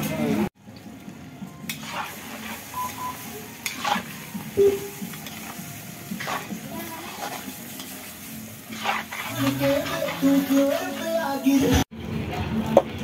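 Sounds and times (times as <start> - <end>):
meat sizzling in a wok: 1.6 - 11.1.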